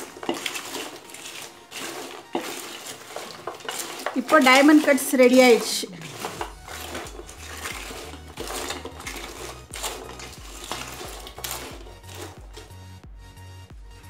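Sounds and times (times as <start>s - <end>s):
scrapes and knocks against bowl: 0.0s - 12.7s
fried snacks tossed in steel bowl: 0.0s - 12.8s
background music with bass line: 6.2s - 14.0s.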